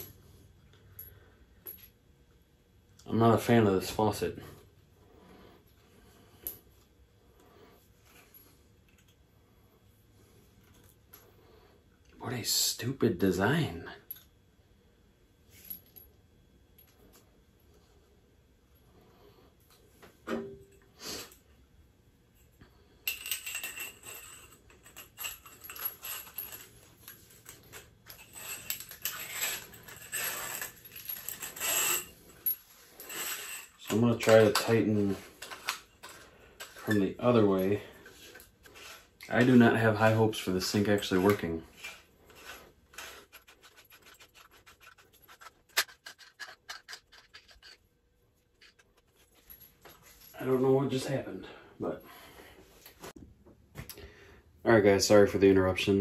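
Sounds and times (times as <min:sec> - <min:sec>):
rubbing and scraping: 0:23.9 - 0:50.3.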